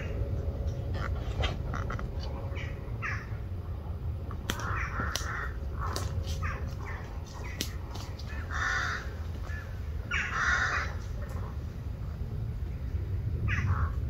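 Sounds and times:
steady low rumble: 0.0 - 14.0
bird harsh calls: 1.0 - 3.4, 4.5 - 11.3, 13.5 - 14.0.

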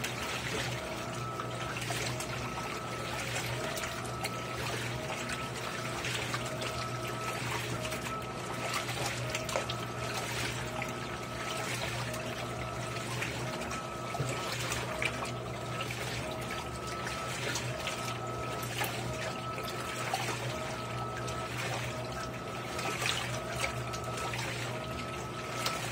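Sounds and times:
motor whine: 0.0 - 25.9
steady low hum: 0.0 - 25.9
water sloshing and churning: 0.0 - 25.9.

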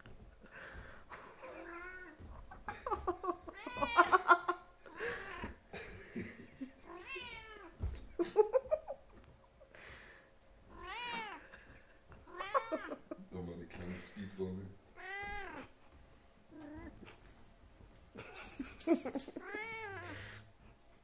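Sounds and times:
kittens meowing: 3.5 - 4.3, 6.9 - 7.7, 10.7 - 11.6, 12.2 - 13.1, 15.0 - 15.8, 19.2 - 20.4.

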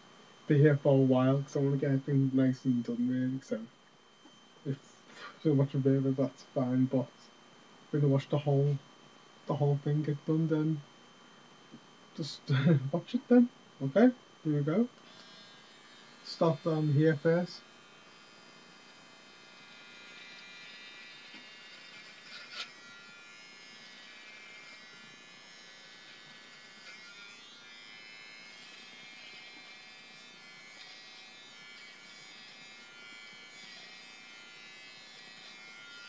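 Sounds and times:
electric beard trimmer running: 12.2 - 13.3, 14.0 - 36.0
trimmer click: 21.3 - 23.0.

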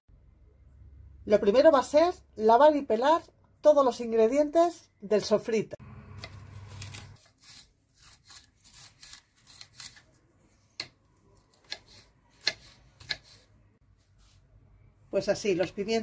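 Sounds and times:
knife slicing pepper: 6.2 - 10.1, 10.7 - 13.5
knife tapping cutting board: 12.4 - 13.3.

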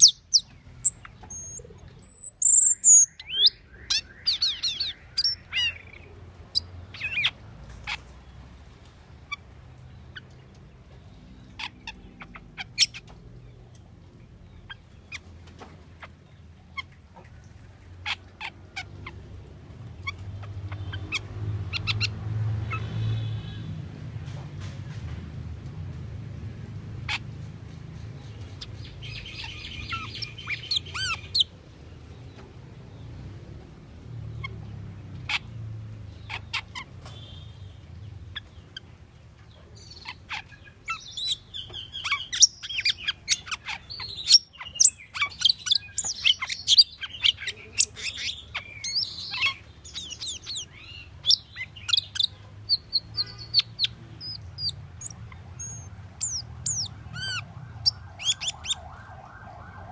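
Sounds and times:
starling singing: 0.0 - 8.0, 28.6 - 31.5, 39.8 - 59.0.

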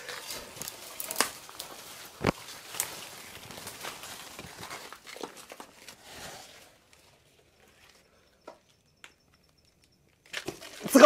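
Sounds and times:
footsteps in undergrowth: 0.0 - 6.1
rustling through leaves: 0.0 - 6.9.

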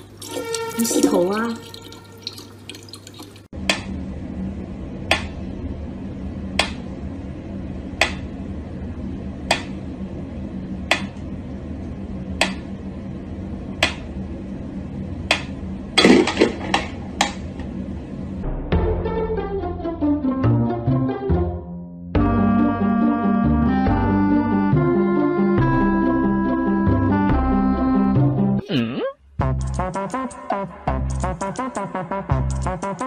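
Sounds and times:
low steady hum: 0.0 - 18.6.

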